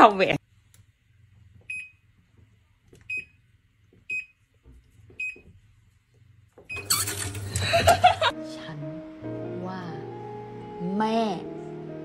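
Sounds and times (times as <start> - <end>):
washing machine button beeps: 1.7 - 2.0, 3.0 - 3.4, 4.1 - 4.3, 5.2 - 5.4, 6.7 - 7.7.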